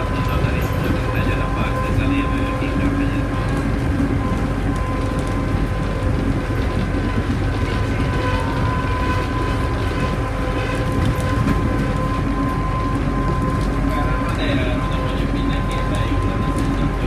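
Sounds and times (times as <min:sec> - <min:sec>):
tyres rumbling on road: 0:00.0 - 0:17.0.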